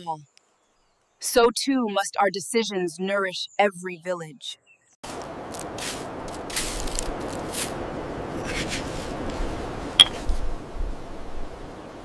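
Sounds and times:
rustling and squishing of leaves: 5.0 - 10.5.

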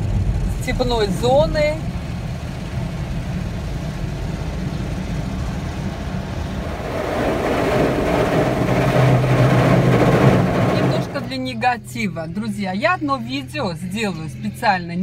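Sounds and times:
car engine running: 0.0 - 12.0
water spraying: 1.9 - 11.5
car wash brushes scrubbing: 5.8 - 11.4.

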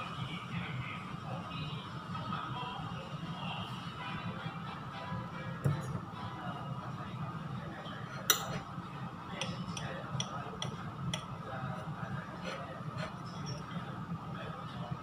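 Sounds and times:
cutlery clinking on a plate: 8.2 - 8.7, 9.4 - 11.3.

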